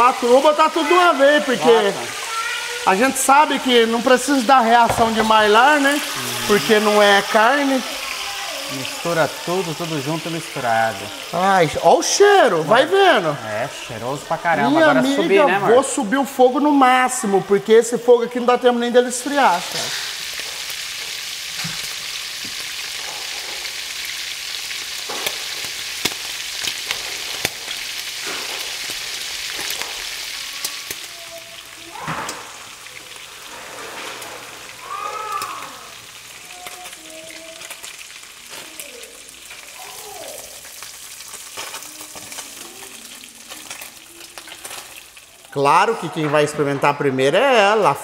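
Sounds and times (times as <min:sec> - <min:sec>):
seafood sizzling in hot oil: 0:00.0 - 0:16.9, 0:17.5 - 0:46.0
knock: 0:04.9 - 0:05.4.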